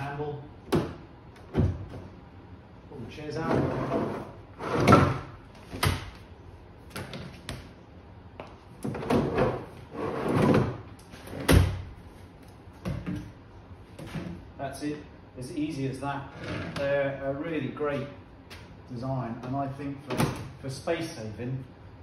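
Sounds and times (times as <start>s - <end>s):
folding chairs scraping and clattering: 3.2s - 6.0s, 8.8s - 12.3s, 16.2s - 17.0s.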